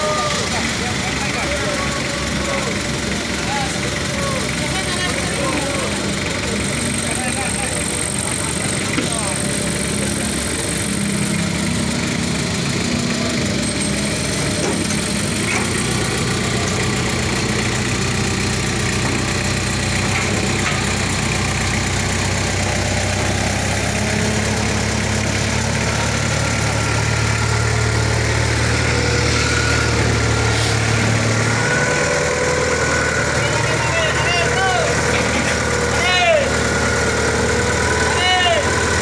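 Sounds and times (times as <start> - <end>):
forklift engine running: 0.0 - 39.0.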